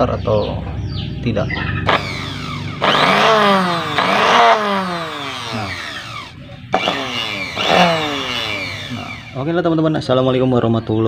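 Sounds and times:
sewing machine motor whirring: 0:01.9 - 0:09.4.

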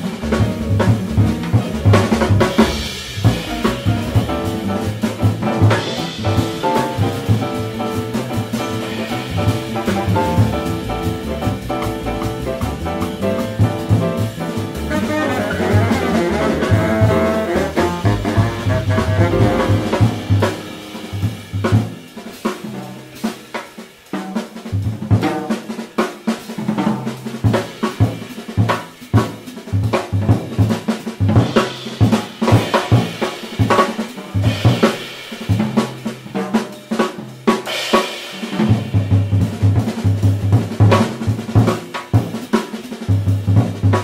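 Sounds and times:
jazz drum solo: 0:00.0 - 0:44.0
horns playing: 0:14.6 - 0:20.5.

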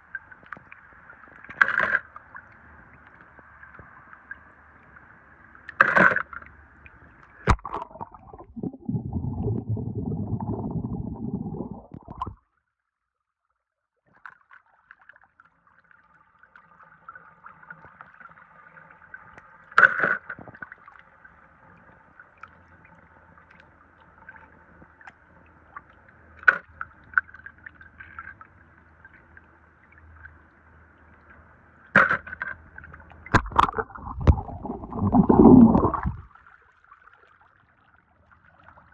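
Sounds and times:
water trickling and sloshing: 0:00.0 - 0:12.5, 0:14.1 - 0:38.9
rush of water: 0:33.3 - 0:36.3.

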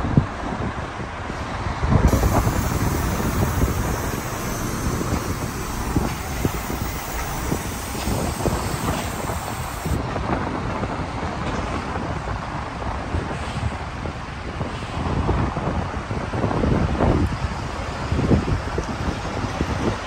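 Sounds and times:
wind buffeting microphone: 0:00.0 - 0:20.0
coach engine idling: 0:02.1 - 0:10.0.

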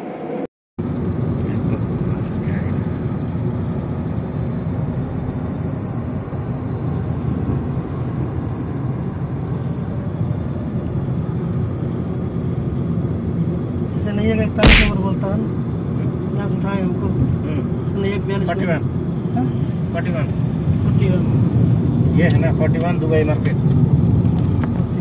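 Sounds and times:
car cabin engine and tyre rumble: 0:00.8 - 0:14.5, 0:16.0 - 0:25.0
sharp loud thump: 0:14.6 - 0:15.2.

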